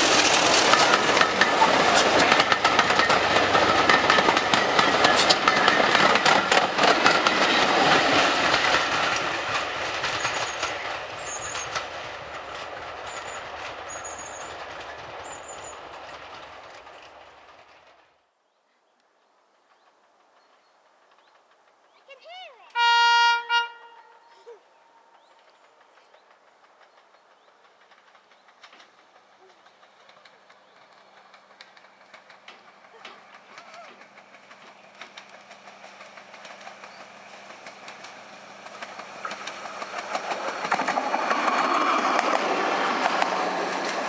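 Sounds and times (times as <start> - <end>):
diesel locomotive engine running: 0.0 - 17.6, 25.2 - 44.0
train wheels clattering over rail joints: 0.0 - 18.2, 25.2 - 44.0.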